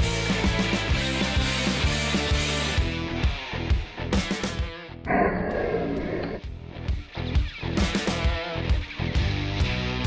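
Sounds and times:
guitar music over a beat: 6.8 - 10.0.

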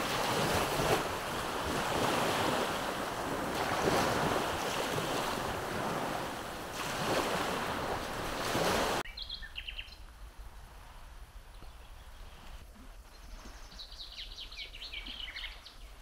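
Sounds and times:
sea waves washing on shore: 0.0 - 9.1
wind on microphone: 0.0 - 16.0.

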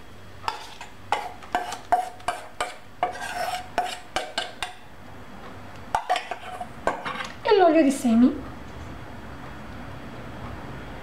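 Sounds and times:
spoon scraping metal bowl: 0.4 - 4.8, 5.9 - 7.4.

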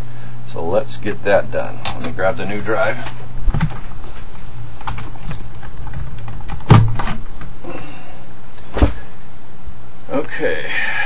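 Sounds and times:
steady low hum: 0.0 - 11.0
clicks and knocks of computer parts: 3.4 - 3.9, 4.8 - 7.5.

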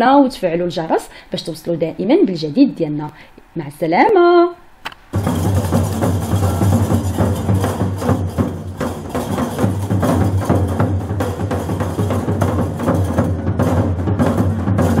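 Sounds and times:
music with drums and bass: 5.2 - 15.0.

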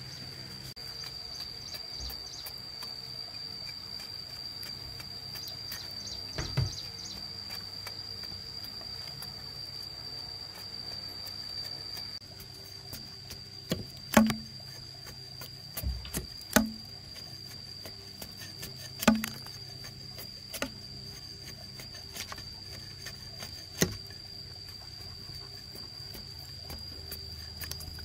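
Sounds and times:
sharp knocks: 6.3 - 6.9, 13.7 - 14.5.

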